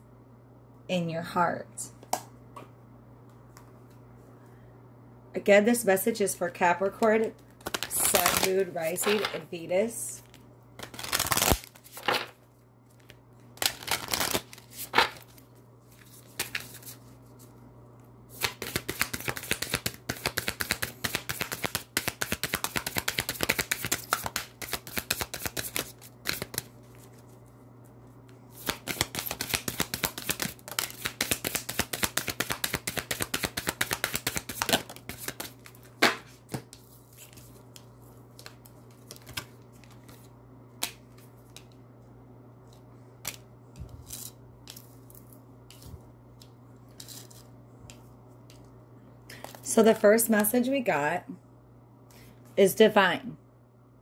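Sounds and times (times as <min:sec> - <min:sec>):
cards being shuffled by hand: 0:07.0 - 0:09.4, 0:10.2 - 0:17.6, 0:18.3 - 0:41.8, 0:42.6 - 0:48.7.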